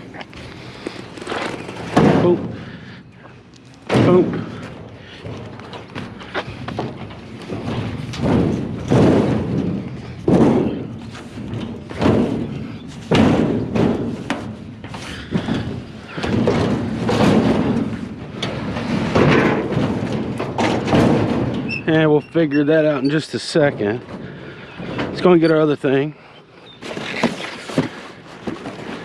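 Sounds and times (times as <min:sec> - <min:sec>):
metal cabinet thudding on wooden deck: 0:01.7 - 0:02.9, 0:03.8 - 0:22.4.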